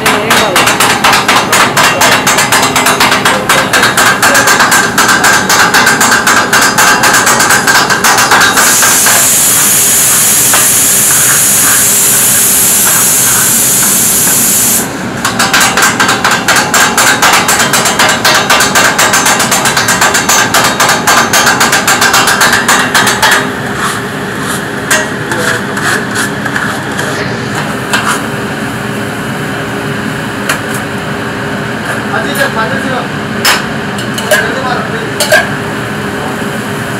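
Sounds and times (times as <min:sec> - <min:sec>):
loud steady hiss: 0:08.4 - 0:15.0.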